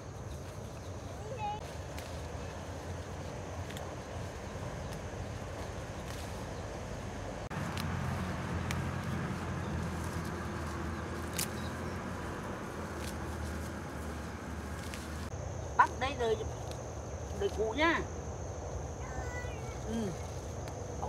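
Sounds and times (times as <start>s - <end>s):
vehicle engine running: 0.0s - 16.8s.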